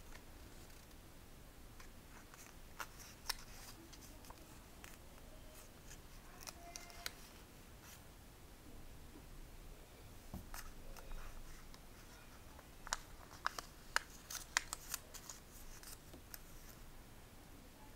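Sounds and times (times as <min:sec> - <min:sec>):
paper crinkling while folded: 0:10.5 - 0:16.8.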